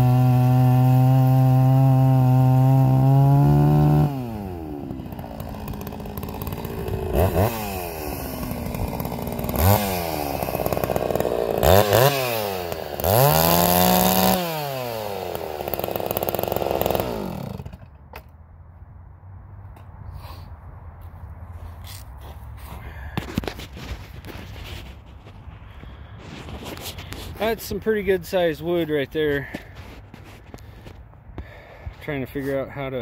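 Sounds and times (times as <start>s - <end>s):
chainsaw idling and revving: 0.0s - 18.0s
chainsaw cutting log: 0.0s - 18.3s, 23.2s - 32.5s.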